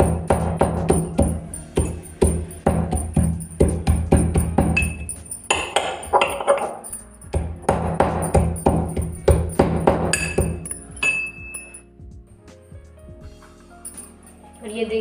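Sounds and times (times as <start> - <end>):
pestle knocking in metal mortar: 0.0 - 11.6.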